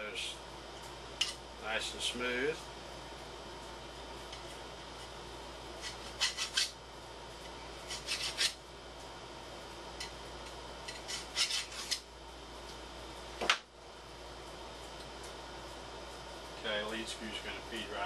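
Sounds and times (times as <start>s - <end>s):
hand file rasping on metal: 5.8s - 6.7s, 7.9s - 8.6s, 10.9s - 12.0s.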